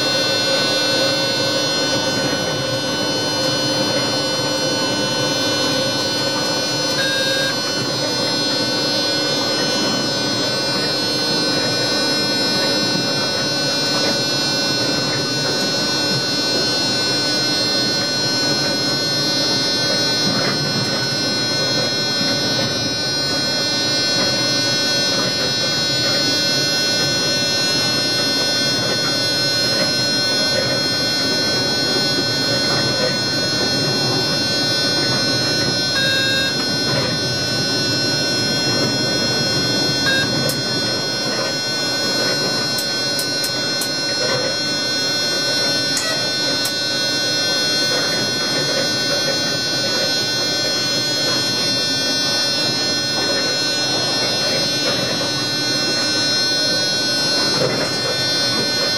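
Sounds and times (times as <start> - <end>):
steady whining tones: 0.0 - 58.9.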